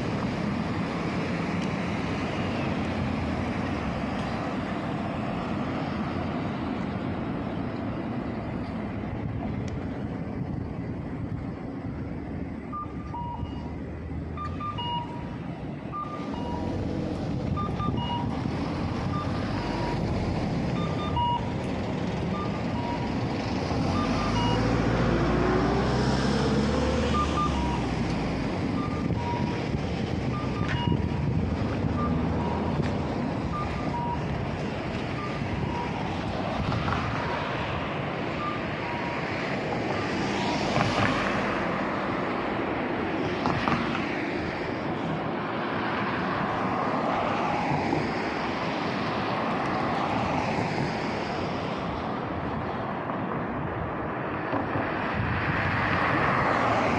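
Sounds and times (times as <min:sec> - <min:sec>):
cars passing: 0:00.0 - 0:56.9
pedestrian crossing beeps: 0:12.6 - 0:25.4, 0:27.0 - 0:40.7
vehicle pulling away: 0:15.9 - 0:41.8.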